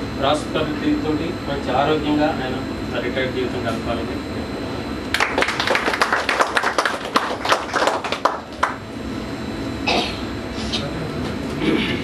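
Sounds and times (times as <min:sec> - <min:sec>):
audience applauding: 0:05.1 - 0:08.8.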